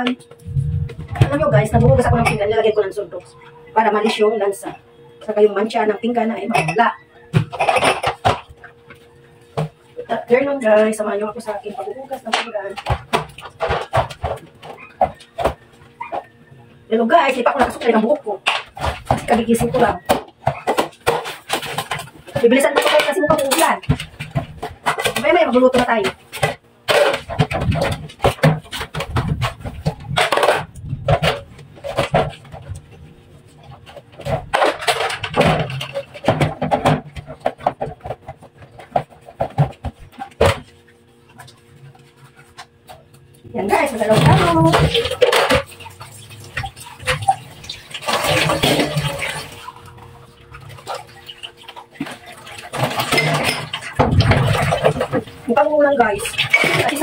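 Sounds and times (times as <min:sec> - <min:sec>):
dishes clattering in steel basin: 0:01.0 - 0:04.4, 0:06.3 - 0:16.4, 0:17.2 - 0:33.0, 0:33.6 - 0:41.6, 0:43.6 - 0:57.0
dishes clicking: 0:06.4 - 0:10.2.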